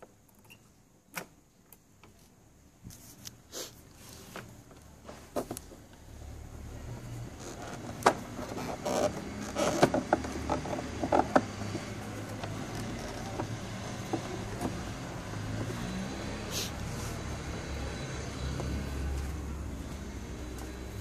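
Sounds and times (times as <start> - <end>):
hands tapping plastic panel: 9.1 - 14.8.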